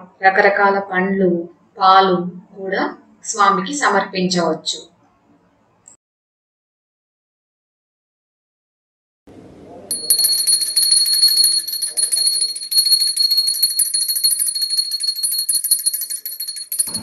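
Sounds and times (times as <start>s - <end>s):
hand bell ringing rapidly: 9.9s - 17.0s.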